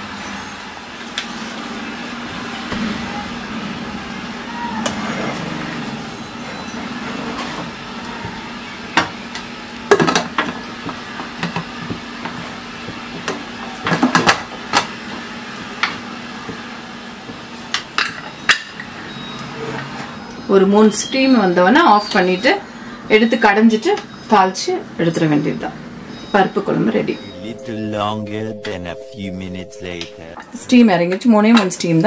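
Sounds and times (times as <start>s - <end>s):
low hum: 27.2s - 30.6s.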